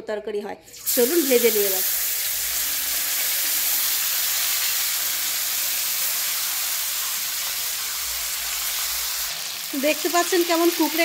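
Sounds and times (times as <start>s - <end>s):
fish sizzling in hot oil: 0.8s - 11.0s.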